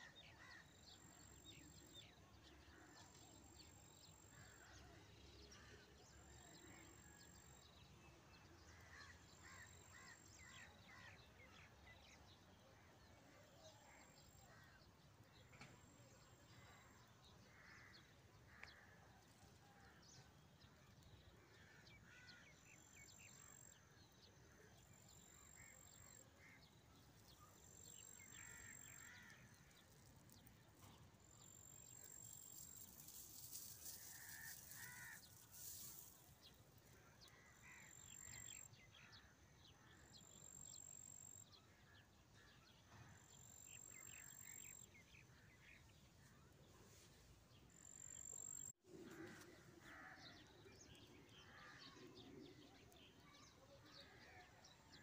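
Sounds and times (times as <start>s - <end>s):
soft hiss: 29.3s - 37.5s.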